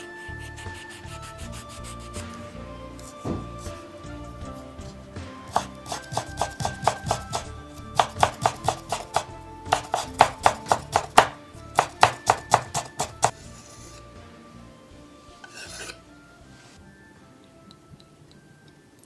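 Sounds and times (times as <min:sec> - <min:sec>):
knife chopping on wooden board: 0:03.2 - 0:03.7, 0:05.5 - 0:13.3.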